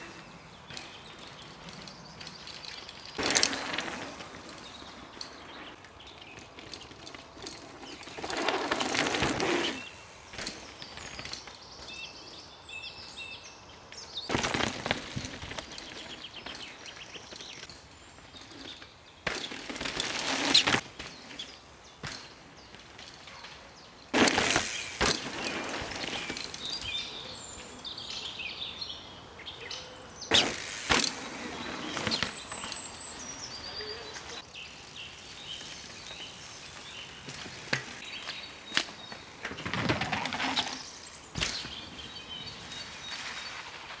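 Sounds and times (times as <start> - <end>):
mountain bike rushing past: 0.0 - 12.5, 14.3 - 23.2, 23.8 - 28.8, 30.2 - 44.0
birds chirping: 0.0 - 44.0
bike landing thud: 24.1 - 26.6, 30.3 - 32.9, 37.2 - 42.1.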